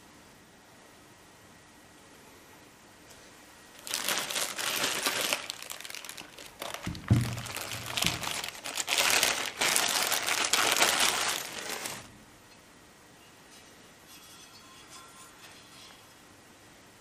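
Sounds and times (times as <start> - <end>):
plastic packaging crinkling: 3.7 - 12.1
dull thump: 6.8 - 8.3.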